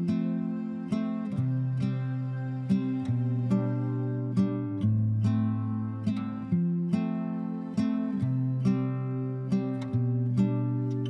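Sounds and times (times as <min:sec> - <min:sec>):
plucked acoustic guitar music: 0:00.0 - 0:11.0.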